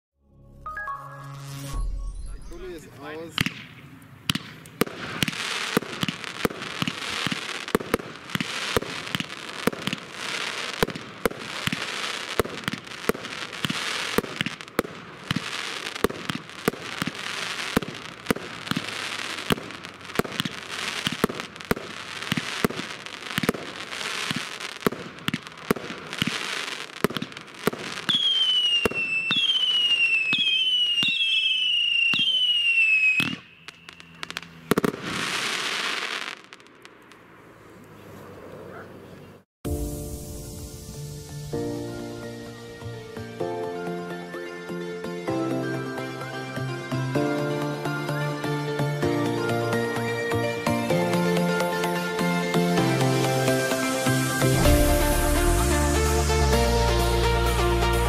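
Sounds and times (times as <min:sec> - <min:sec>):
falling firework whistles: 0:01.2 - 0:37.0, 0:39.7 - 0:43.5, 0:50.2 - 0:58.0
firework cake firing: 0:02.5 - 0:37.3, 0:53.0 - 0:58.0.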